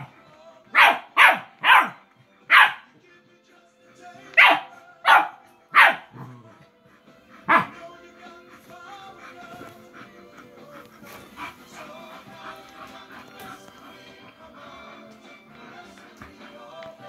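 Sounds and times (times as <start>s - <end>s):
faint music: 0.0s - 17.0s
dog barking: 0.7s - 2.9s, 4.4s - 6.4s, 7.4s - 7.8s.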